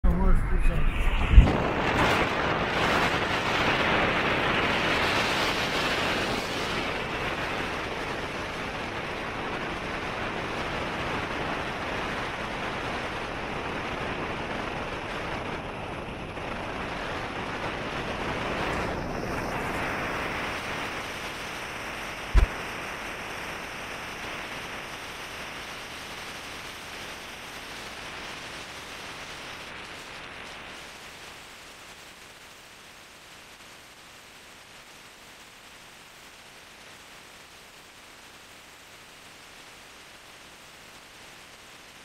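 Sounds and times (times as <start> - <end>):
low thump: 22.4 - 22.6.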